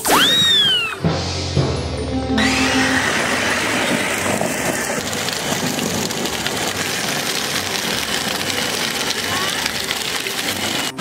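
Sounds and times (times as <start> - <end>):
plastic wheels rolling on pavement: 3.8 - 11.0.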